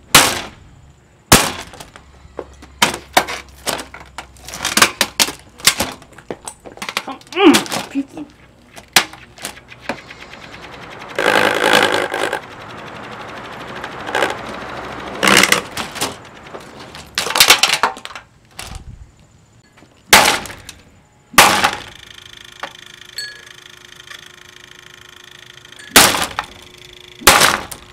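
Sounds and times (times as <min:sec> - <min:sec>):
plastic cracking and breaking: 0:02.8 - 0:08.0, 0:15.4 - 0:18.8
fan blades rattling: 0:02.8 - 0:18.9, 0:23.9 - 0:27.9.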